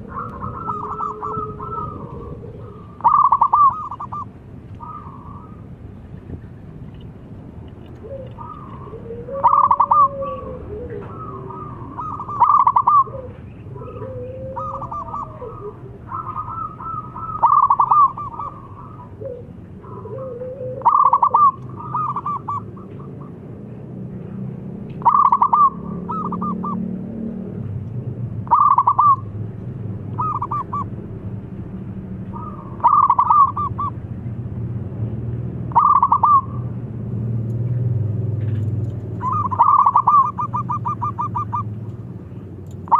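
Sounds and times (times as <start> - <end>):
dove cooing: 0.0 - 5.7, 8.0 - 23.5, 25.0 - 27.0, 28.4 - 29.3, 30.1 - 30.9, 32.3 - 34.0, 35.7 - 36.7, 39.1 - 41.8
gliding bird calls: 0.0 - 6.6, 7.8 - 23.5, 25.0 - 27.0, 28.4 - 29.3, 30.1 - 31.0, 32.3 - 34.0, 35.7 - 36.8, 38.5 - 42.9
low background hum: 0.0 - 42.9.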